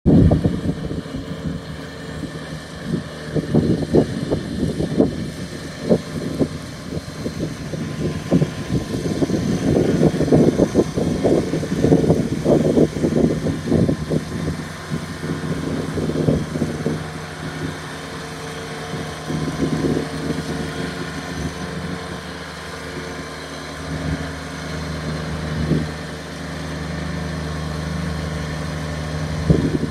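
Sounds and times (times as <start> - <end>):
mower cutting grass: 0.0 - 29.9
tractor diesel engine running: 0.0 - 29.9.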